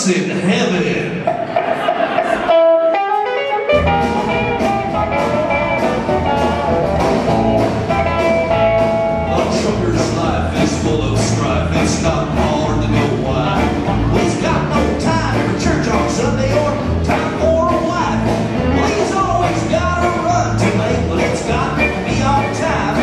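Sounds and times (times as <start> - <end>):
drums steady beat: 1.2 - 23.0
acoustic guitar: 1.3 - 23.0
sustained lead melody: 2.6 - 10.0, 12.1 - 23.0
upright bass: 3.6 - 23.0.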